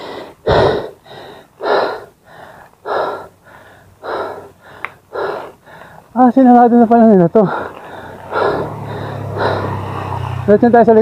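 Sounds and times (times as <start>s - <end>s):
cyclist breathing hard: 0.0s - 6.2s, 7.3s - 10.4s.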